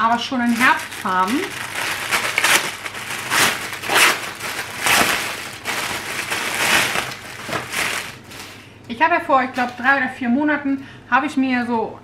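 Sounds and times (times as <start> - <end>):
plastic crinkling and rustling: 0.0 - 8.7.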